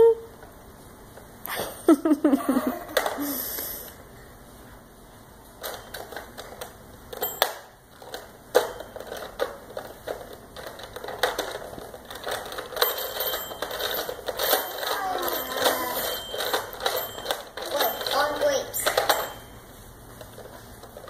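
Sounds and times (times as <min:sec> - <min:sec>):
toy telephone clicks and knocks: 0:05.6 - 0:19.6
faint high ringing: 0:12.8 - 0:20.1.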